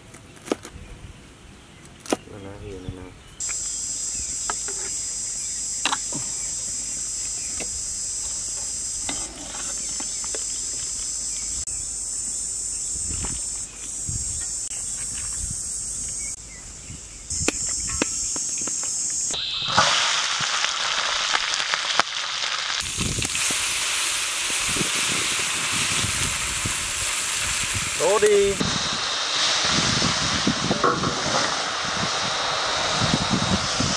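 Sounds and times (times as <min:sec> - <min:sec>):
insects shrilling: 0:03.4 - 0:30.7
vegetables sizzling in a wok: 0:03.5 - 0:11.7, 0:17.8 - 0:33.9.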